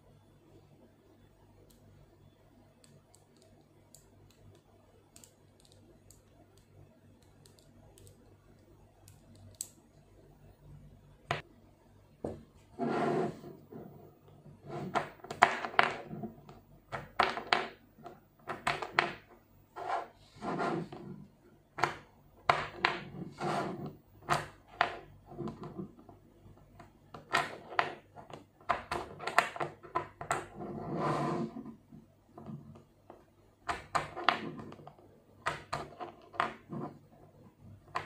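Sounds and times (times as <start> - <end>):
magnetic balls clicking: 2.7 - 10.0.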